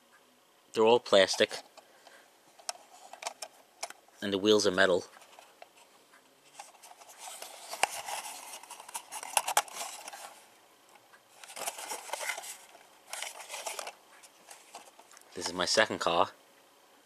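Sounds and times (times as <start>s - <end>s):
plastic model clicking and rattling: 2.6s - 4.0s, 6.6s - 10.3s, 11.4s - 15.2s.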